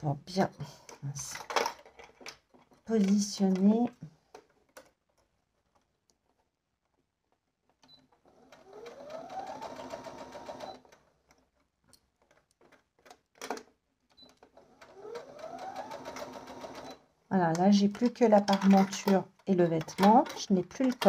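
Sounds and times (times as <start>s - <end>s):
sewing machine motor whine: 8.3s - 10.9s, 14.8s - 17.0s.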